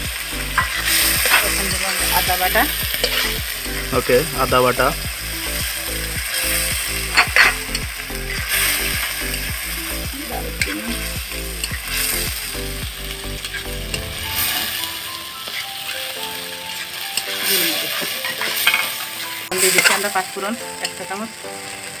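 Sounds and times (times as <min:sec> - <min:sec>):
paste sizzling in hot oil: 0:00.0 - 0:22.0
metal spatula scraping pan: 0:02.9 - 0:03.4, 0:07.1 - 0:07.8.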